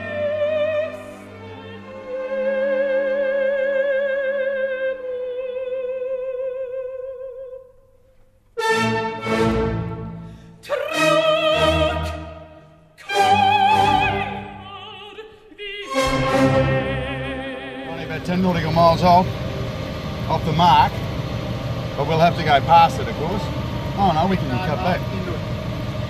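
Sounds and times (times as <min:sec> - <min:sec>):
operatic voice and orchestra: 0:00.0 - 0:07.2, 0:08.6 - 0:19.3
singer holding wavering note: 0:10.7 - 0:26.0.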